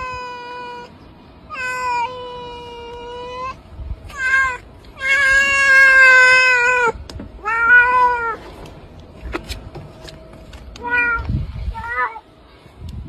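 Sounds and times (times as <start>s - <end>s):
cat meowing loudly: 0.0s - 0.9s, 1.5s - 8.4s, 10.8s - 12.2s.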